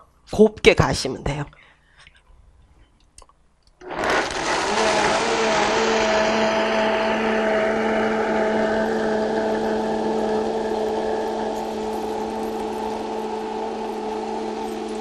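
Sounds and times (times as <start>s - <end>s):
blender motor hum: 3.8s - 15.0s
rushing hiss of blending: 3.8s - 15.0s.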